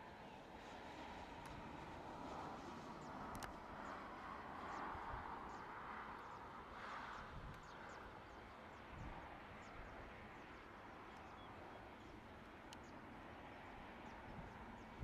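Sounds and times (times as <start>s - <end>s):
distant jet engine hiss: 0.0s - 15.0s
small birds chirping: 7.2s - 15.0s.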